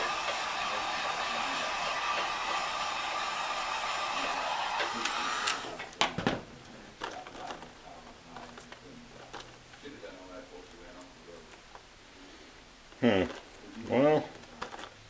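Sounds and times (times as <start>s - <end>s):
heat gun blowing hot air: 0.0s - 5.8s.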